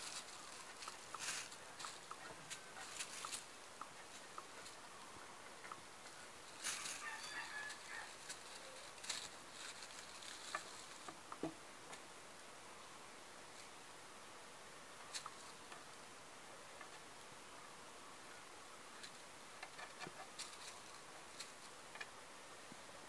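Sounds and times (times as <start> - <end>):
kittens scuffling on plastic sheeting: 0.0 - 3.5, 6.5 - 11.2, 19.8 - 21.8.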